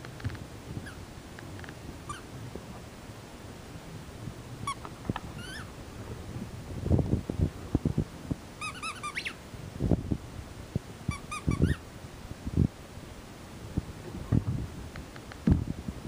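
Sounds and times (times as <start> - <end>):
rubber squeaky dog toy squeaking: 4.6 - 5.7, 8.6 - 9.4, 11.1 - 11.8.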